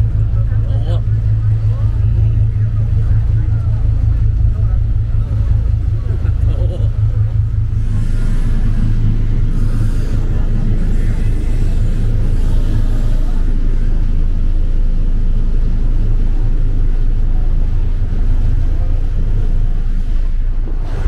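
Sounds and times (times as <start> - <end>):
boat engine idling: 0.0 - 21.0.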